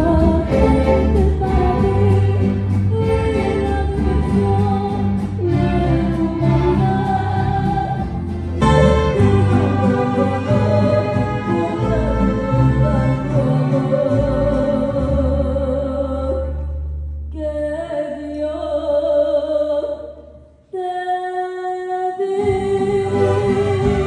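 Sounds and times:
mariachi band playing: 0.0 - 17.1, 22.4 - 24.0.

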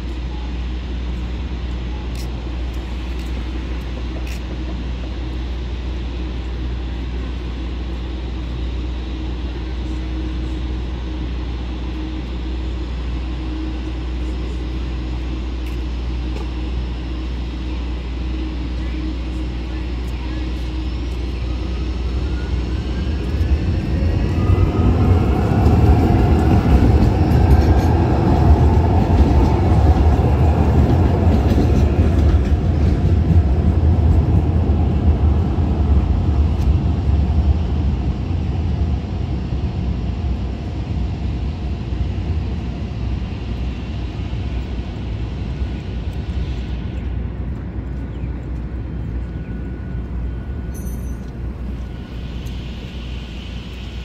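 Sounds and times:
gliding whine: 0.0 - 54.0
train wheels rumbling on rail: 0.0 - 54.0.

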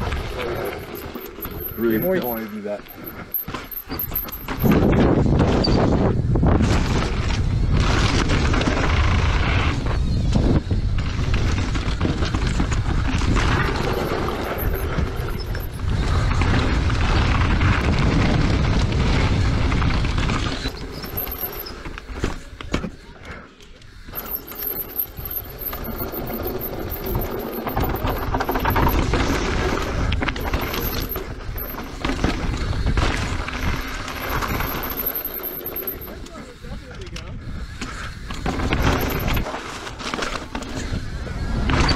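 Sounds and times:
tyres rattling over gravel: 0.0 - 5.4, 11.0 - 37.2, 37.9 - 41.0
wind buffeting microphone: 4.5 - 22.7, 36.0 - 39.5.

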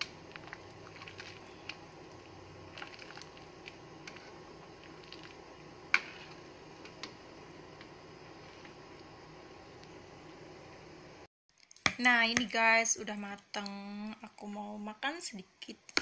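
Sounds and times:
ladle stirring stew in pan: 0.0 - 9.0.

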